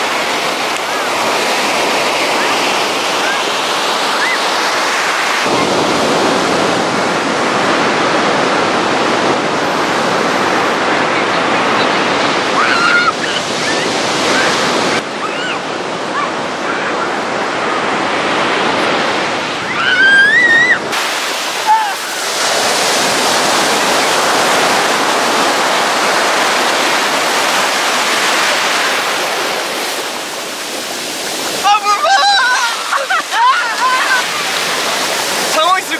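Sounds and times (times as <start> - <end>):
ocean surf breaking: 0.0 - 35.9
wind buffeting microphone: 5.4 - 21.2
high cries: 12.5 - 14.5, 19.6 - 20.9, 21.6 - 22.3, 31.6 - 34.6.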